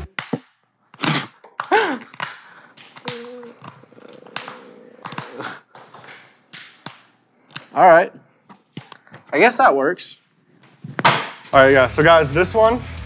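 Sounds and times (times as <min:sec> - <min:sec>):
gloved hands clapping: 0:00.0 - 0:00.7, 0:01.5 - 0:07.7.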